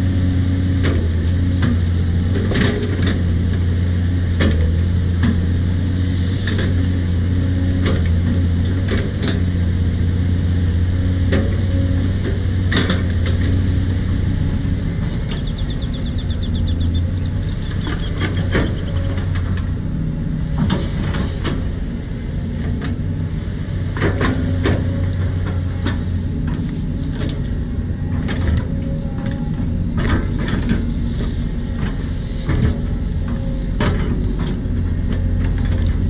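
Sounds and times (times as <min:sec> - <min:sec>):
excavator diesel engine running: 0:00.0 - 0:36.0.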